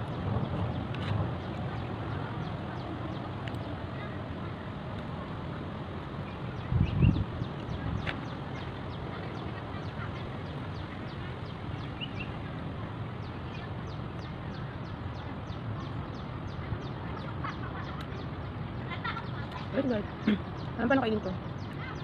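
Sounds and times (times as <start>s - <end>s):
wind rumble on microphone: 0.0s - 22.0s
bird chirping: 6.2s - 22.0s.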